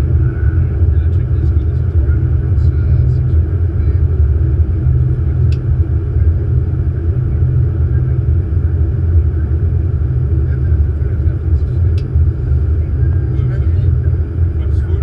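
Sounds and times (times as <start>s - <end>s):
low rumble of airflow and engine: 0.0s - 15.0s.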